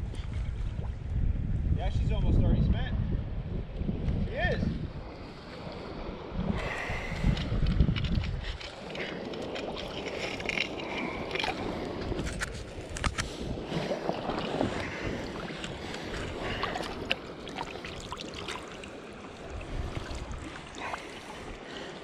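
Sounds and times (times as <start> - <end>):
water splashing and sloshing: 0.0 - 1.3, 3.6 - 22.0
flowing water rushing: 13.4 - 22.0.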